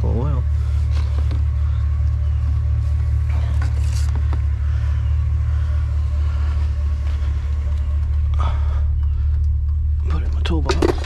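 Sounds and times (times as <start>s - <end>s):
truck engine idling: 0.0s - 11.0s
metal cans clattering: 10.5s - 11.0s.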